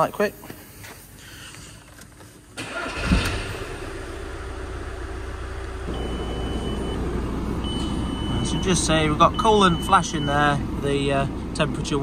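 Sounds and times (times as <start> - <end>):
diesel engine starting and idling: 2.6 - 12.0
electronic warning chime: 5.9 - 10.4.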